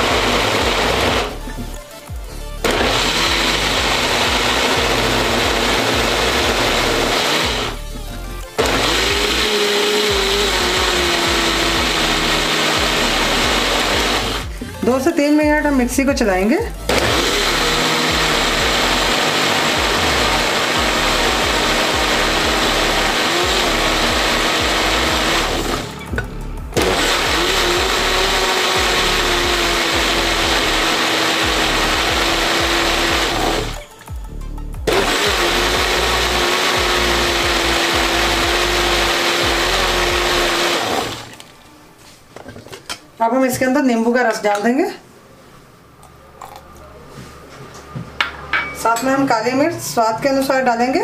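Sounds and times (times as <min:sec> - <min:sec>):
juicer motor whining: 0:00.0 - 0:01.5, 0:02.6 - 0:07.8, 0:08.6 - 0:14.6, 0:16.9 - 0:26.0, 0:26.7 - 0:33.8, 0:34.9 - 0:41.4.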